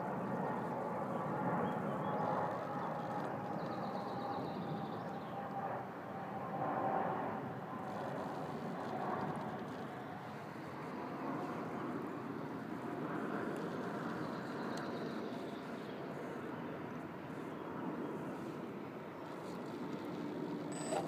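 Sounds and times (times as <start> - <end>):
jet airliner engines: 0.0 - 21.0
faint high whine: 19.2 - 21.0.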